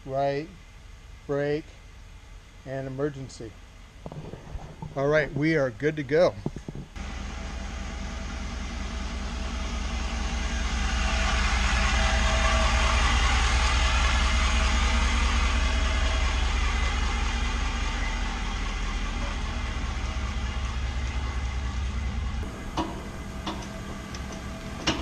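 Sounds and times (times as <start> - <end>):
pickup truck engine running: 6.4 - 25.0.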